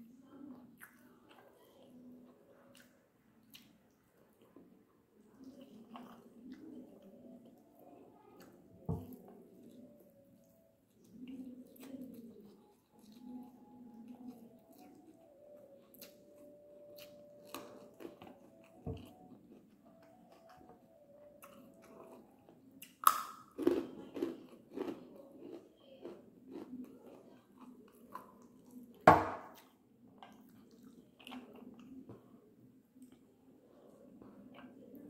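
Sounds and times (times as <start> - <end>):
wet chewing and lip-smacking: 5.3 - 20.8, 21.4 - 28.9.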